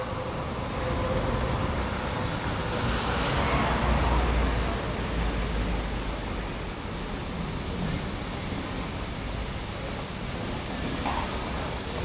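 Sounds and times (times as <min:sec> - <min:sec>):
tram moving off: 0:00.0 - 0:12.0
car driving past: 0:00.9 - 0:06.4.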